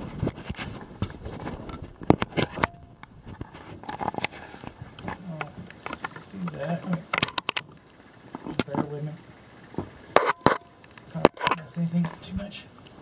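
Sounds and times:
camera handling clicks and scraping: 0.2s - 7.7s, 10.1s - 12.2s.

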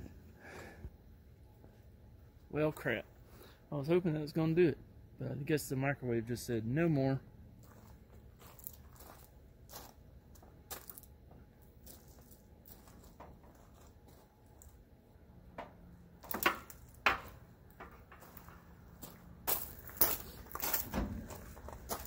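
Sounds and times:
footsteps crunching on gravel: 7.6s - 11.1s, 11.8s - 14.8s, 17.9s - 22.0s.

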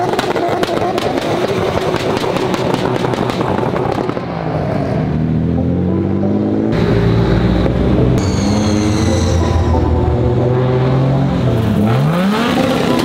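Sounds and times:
car engine revving: 0.4s - 13.0s.

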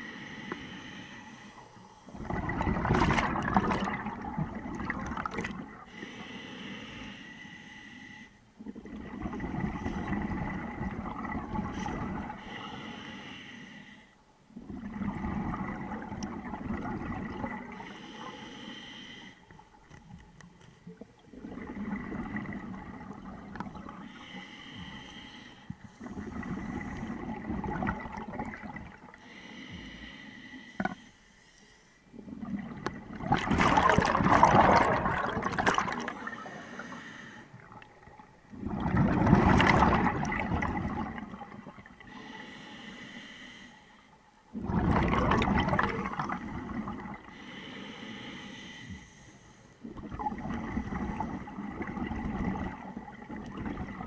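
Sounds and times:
regulator inhale hiss: 0.0s - 2.1s, 5.9s - 8.4s, 11.8s - 14.2s, 17.7s - 19.5s, 24.0s - 27.2s, 29.2s - 32.1s, 36.4s - 37.6s, 42.0s - 44.2s, 47.3s - 49.8s
exhaled bubbles gurgling: 2.1s - 6.0s, 8.6s - 12.8s, 14.6s - 18.3s, 20.8s - 25.0s, 25.7s - 29.2s, 32.1s - 42.3s, 44.5s - 47.6s, 49.8s - 54.0s.

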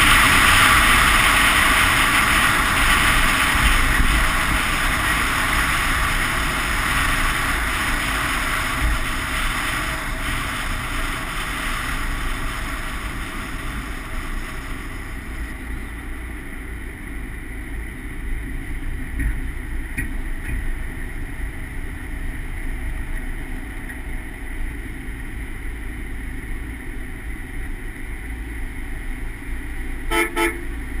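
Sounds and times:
tyre and wind noise: 0.0s - 17.1s
car exhaust rumble: 0.0s - 31.0s.

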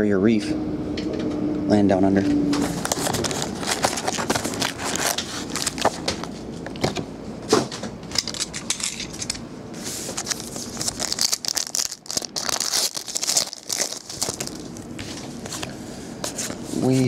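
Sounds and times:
wrapper tearing and crinkling: 2.7s - 6.4s, 10.1s - 14.9s.

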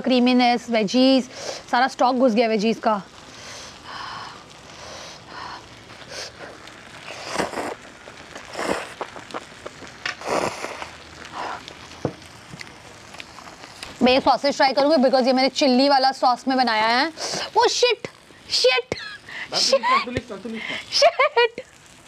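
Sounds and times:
faint crackle of electric grill: 0.0s - 22.0s
noodles being slurped and chewed: 6.0s - 11.9s.

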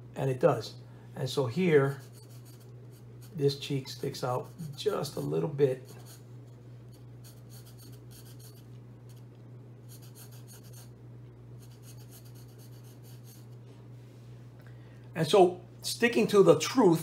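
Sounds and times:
steady low hum: 0.0s - 17.0s
pencil scratching on paper: 1.7s - 9.3s, 9.9s - 10.9s, 11.6s - 13.6s.

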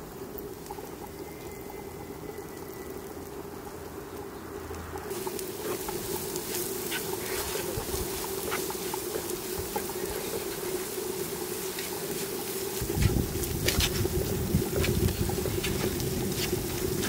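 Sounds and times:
onions sizzling in oil: 0.0s - 17.0s
wooden spatula stirring in pan: 5.1s - 17.0s.

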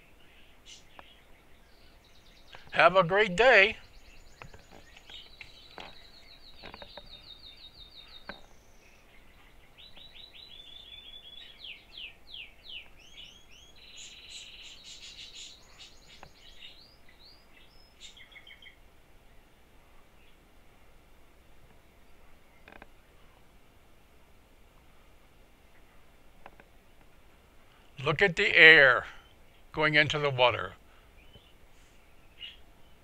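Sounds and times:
songbirds trilling: 0.0s - 20.6s, 21.6s - 23.6s, 24.9s - 33.0s
light clicks and knocks: 4.4s - 7.2s.

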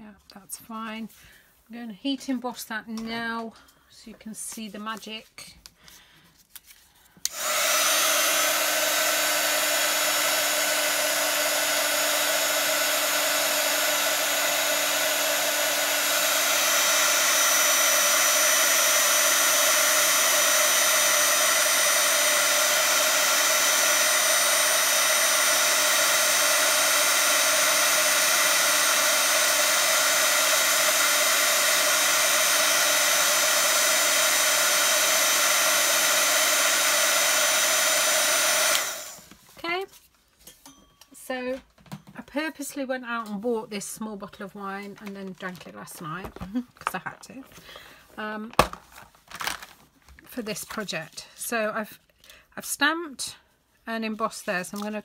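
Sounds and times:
heat gun fan blowing: 7.2s - 39.4s.

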